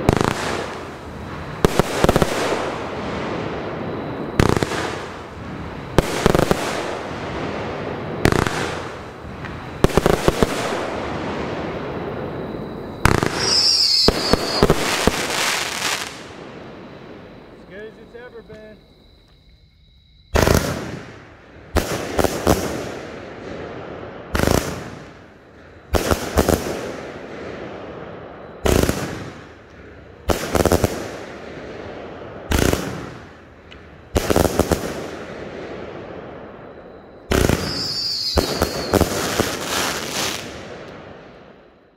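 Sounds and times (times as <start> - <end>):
falling firework whistle: 0.0 - 19.5, 34.2 - 41.9.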